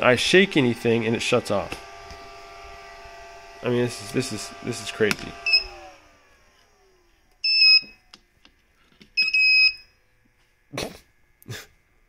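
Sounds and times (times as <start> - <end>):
short high alarm beeps: 5.5 - 5.7, 7.4 - 8.0, 9.2 - 9.9.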